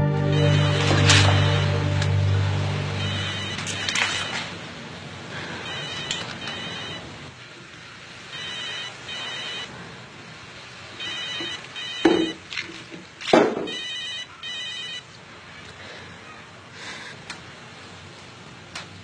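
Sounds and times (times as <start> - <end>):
telephone ringing: 0.0 - 2.3, 2.9 - 4.5, 5.6 - 7.2, 8.3 - 9.7, 11.0 - 12.4, 13.7 - 15.2.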